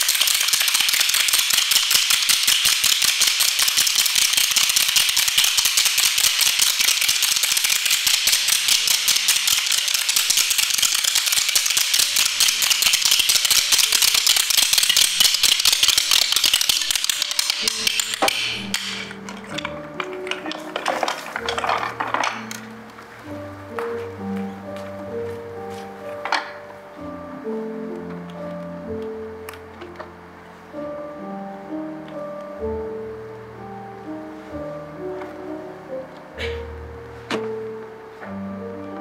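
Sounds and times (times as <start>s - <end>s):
wooden spoons clacking: 0.0s - 23.0s, 26.1s - 26.7s
pitched musical notes: 3.1s - 39.0s.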